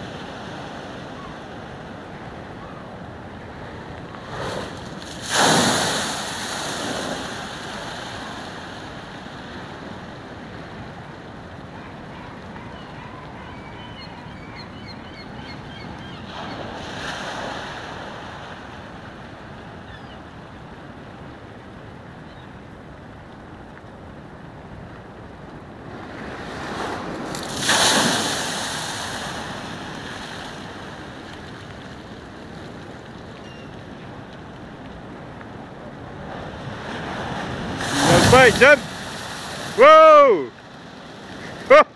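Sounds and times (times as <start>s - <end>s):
waves crashing against stone wall: 4.1s - 9.9s, 26.0s - 32.8s, 36.1s - 41.9s.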